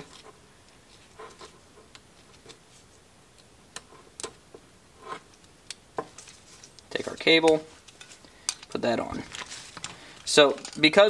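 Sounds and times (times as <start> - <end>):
plastic packaging rustling: 6.1 - 11.0
small parts clicking: 6.7 - 8.8, 9.7 - 11.0.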